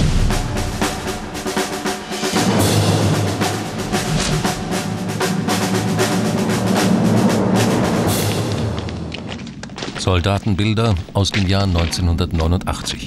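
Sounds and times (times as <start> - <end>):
drums and percussion: 0.0 - 9.6.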